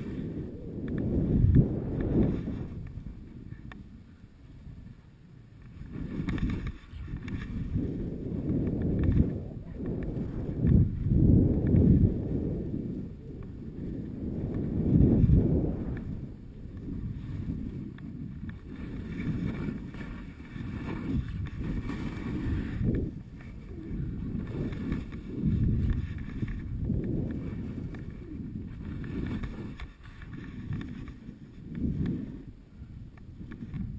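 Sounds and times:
wind rushing over microphone: 0.0s - 33.9s
skis hissing over snow: 18.6s - 31.3s.

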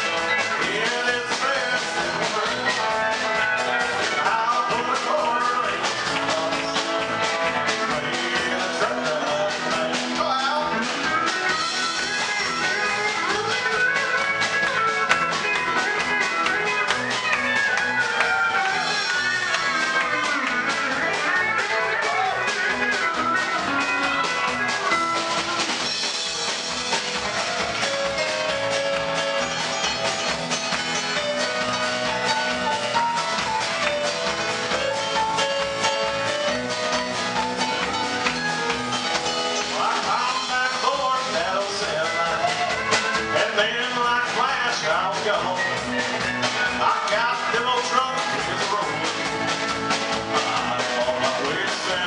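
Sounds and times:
country band playing: 0.0s - 52.0s
electric guitar: 0.0s - 52.0s.

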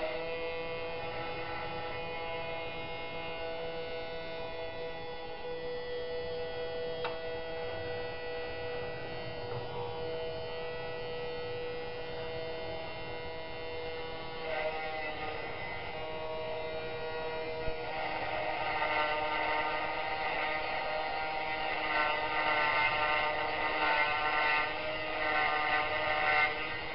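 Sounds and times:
engraving motor whining: 0.0s - 26.9s.

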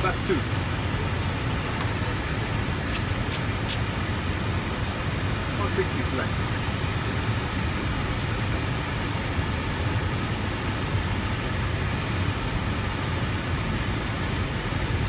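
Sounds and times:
airliner cockpit rumble: 0.0s - 15.0s
rush of airflow: 0.3s - 15.0s.

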